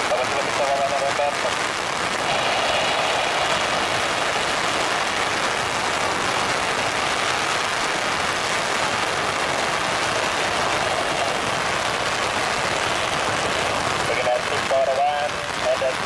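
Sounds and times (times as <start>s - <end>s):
heavy rain falling: 0.0s - 16.0s
jet engines taxiing: 2.2s - 6.1s, 10.1s - 12.3s.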